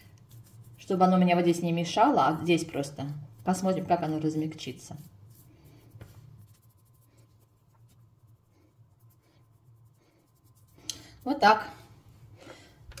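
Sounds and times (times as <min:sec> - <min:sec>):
hands rubbing cream into skin: 0:00.0 - 0:01.3, 0:02.6 - 0:11.4
low steady hum: 0:00.0 - 0:13.0.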